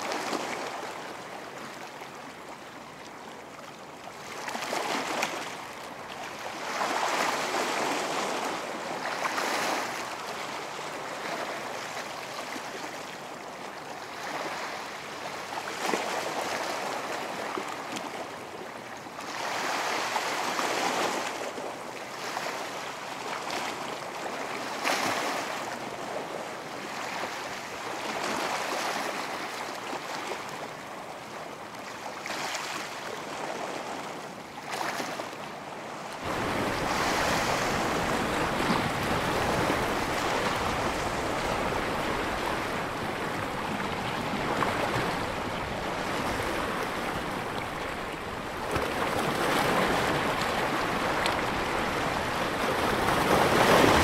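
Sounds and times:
ocean waves breaking: 4.2s - 18.5s, 31.9s - 54.0s.

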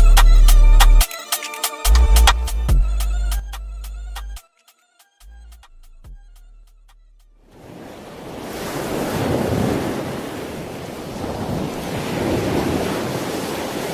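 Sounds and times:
sea waves surging: 7.5s - 13.9s.

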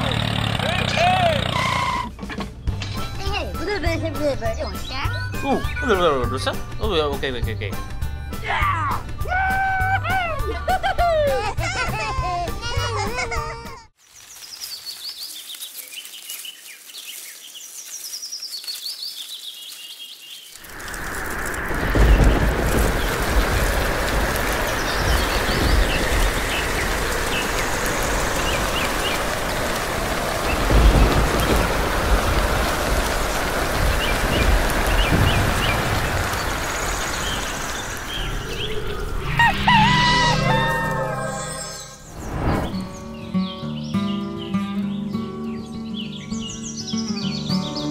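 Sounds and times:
birds chirping: 0.7s - 9.2s, 14.0s - 47.9s
steady rushing hiss: 14.1s - 43.2s
heavy rain: 20.5s - 42.8s
low rumbling: 20.6s - 43.2s
bird chirps: 33.9s - 47.9s.

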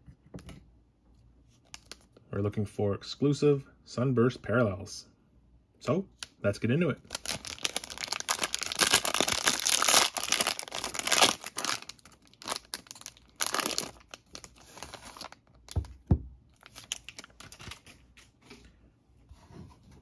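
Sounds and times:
plastic wrapper tearing and crinkling: 1.6s - 2.2s, 7.0s - 15.9s, 16.5s - 18.0s.

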